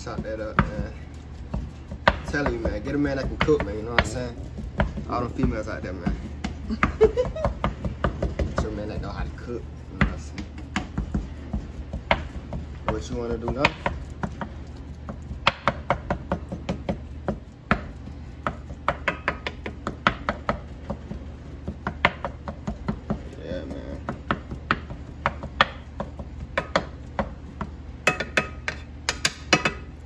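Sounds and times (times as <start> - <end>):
spatula tapping frying pan: 0.0 - 30.0.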